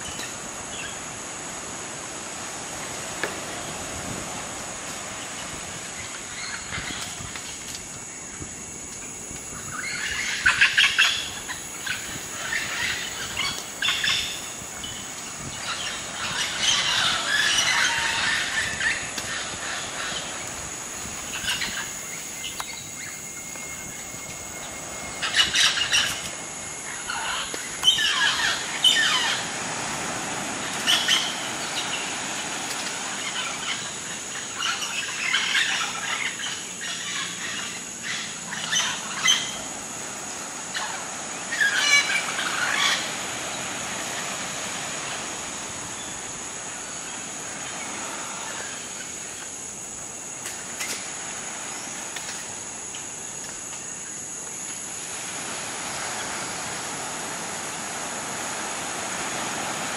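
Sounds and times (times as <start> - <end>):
macaws calling: 9.6 - 23.0, 24.0 - 29.8, 33.0 - 39.8, 40.6 - 45.3.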